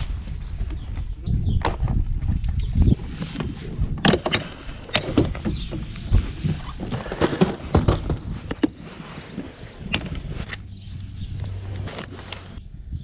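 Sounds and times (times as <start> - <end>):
plastic boxes clattering: 4.1 - 8.9
low rumble: 7.7 - 13.0.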